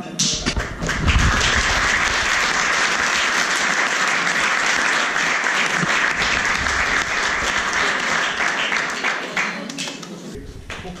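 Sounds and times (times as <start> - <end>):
crowd applauding: 0.3 - 9.8.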